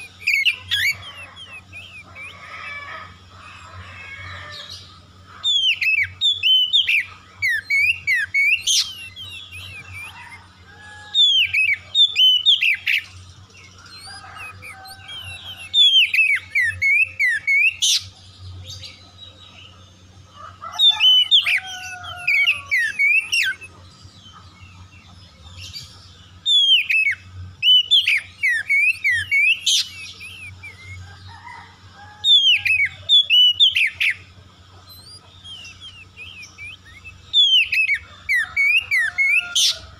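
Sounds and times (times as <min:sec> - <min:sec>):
bird singing whistled notes: 0:00.0 - 0:03.1, 0:04.6 - 0:20.0, 0:25.7 - 0:31.4, 0:32.2 - 0:39.9
bird chirps: 0:00.0 - 0:39.9
steady low hum: 0:00.0 - 0:39.9.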